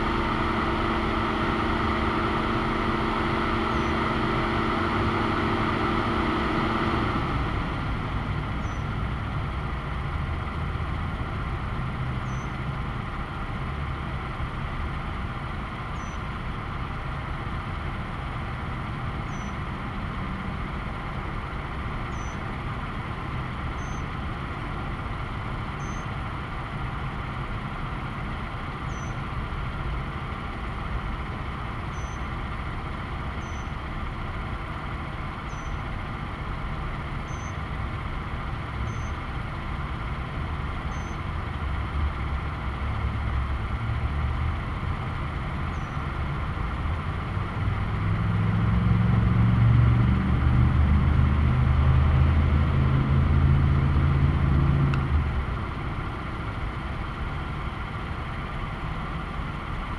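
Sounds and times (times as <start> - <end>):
road traffic noise: 0.0 - 59.9
vehicle engine rumble: 0.0 - 59.9
faint high chirps: 37.2 - 37.6, 38.8 - 39.2.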